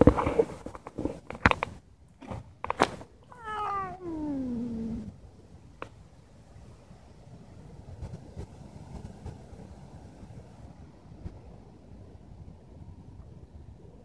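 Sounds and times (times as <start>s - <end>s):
cat meowing: 3.2s - 5.2s.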